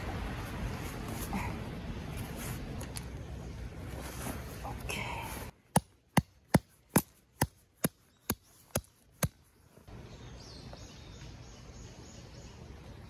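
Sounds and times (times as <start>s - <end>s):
hammer striking tent peg: 5.7s - 9.4s.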